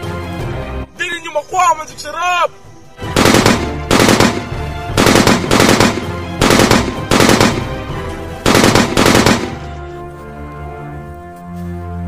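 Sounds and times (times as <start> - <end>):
background music: 0.0 - 12.0
machine-gun fire bursts: 3.1 - 7.8, 8.4 - 9.6.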